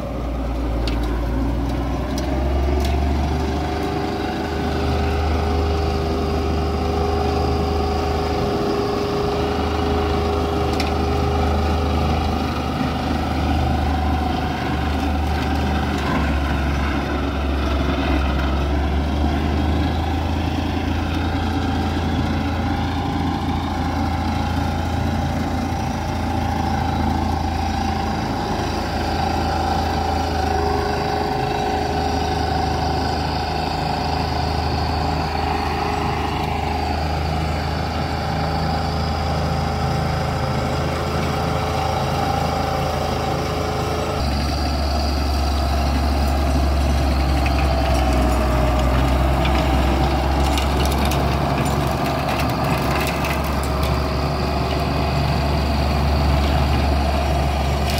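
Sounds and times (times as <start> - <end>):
tractor diesel engine running: 0.0 - 57.9.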